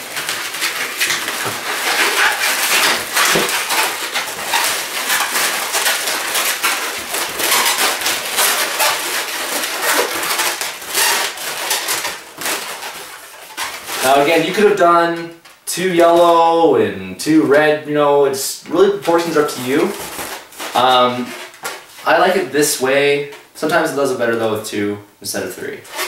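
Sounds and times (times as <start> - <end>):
balloons squeaking and rubbing: 0.0 - 15.4, 18.7 - 23.1, 25.7 - 26.0.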